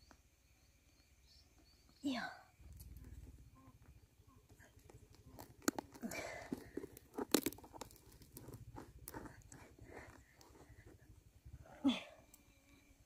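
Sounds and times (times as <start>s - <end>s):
crunching scraping noise: 4.8s - 11.0s.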